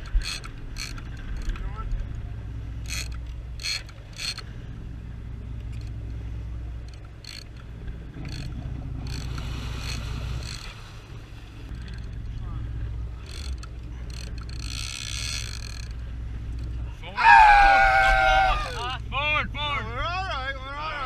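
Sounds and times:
fishing reel gears grinding and clicking: 0.0 - 1.7, 2.8 - 4.6, 6.8 - 10.8, 11.7 - 12.3, 13.2 - 16.8.

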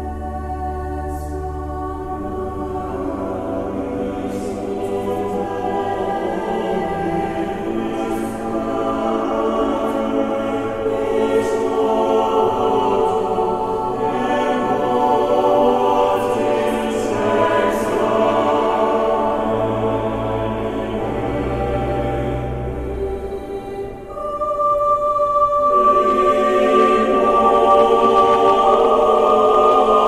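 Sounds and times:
choir singing sustained chords: 0.0 - 30.0.

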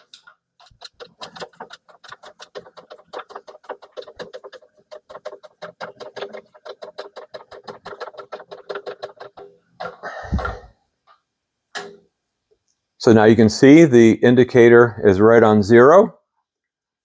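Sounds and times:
milling machine table clicking: 0.0 - 10.7.

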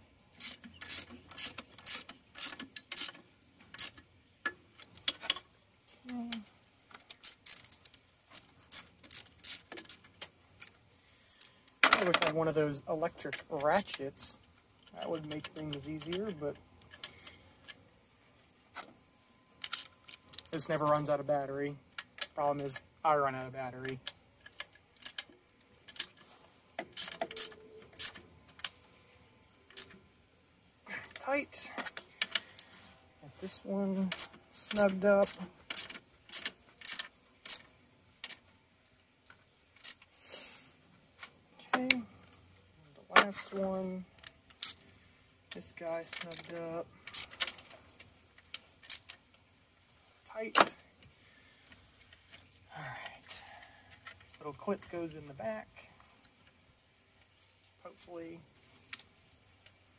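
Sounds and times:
ratchet wrench clicking: 0.4 - 4.0, 6.9 - 10.7, 19.6 - 20.6, 24.4 - 25.3, 26.8 - 28.2, 34.1 - 38.4, 46.2 - 47.5, 48.8 - 49.2.

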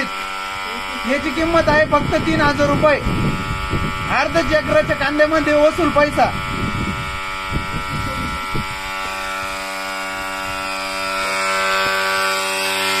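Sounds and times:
small electric motor humming: 0.0 - 13.0.

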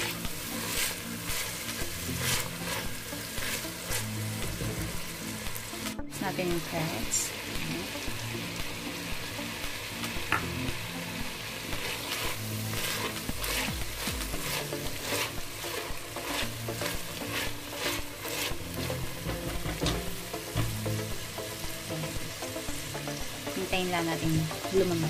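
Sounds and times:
spatula scraping a pot: 0.0 - 4.9, 11.8 - 20.1
vegetables sizzling in a pot: 0.0 - 25.0.

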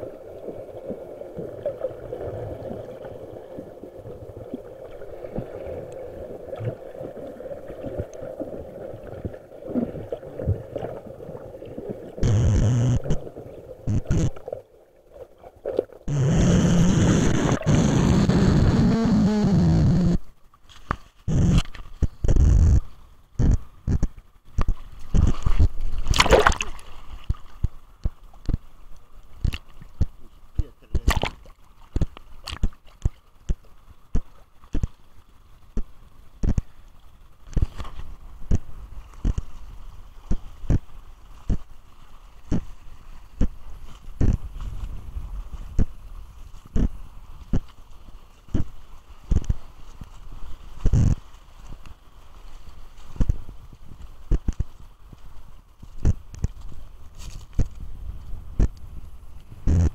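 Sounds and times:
muffled underwater rush of water: 0.0 - 20.6.

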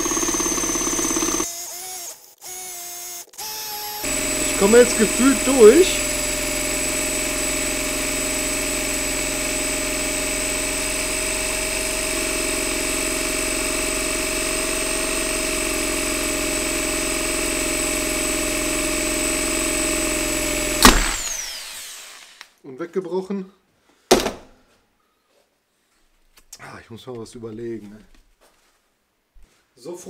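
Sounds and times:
drill stopping with click: 0.0 - 16.5, 17.4 - 22.5
electric drill running: 0.0 - 22.4.

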